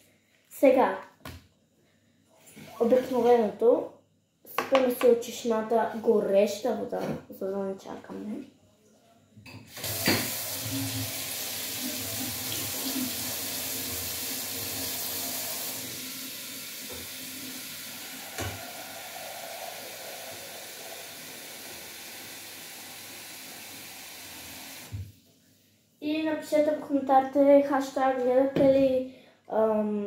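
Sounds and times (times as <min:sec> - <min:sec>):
tap water filling metal pot: 0:09.7 - 0:25.0.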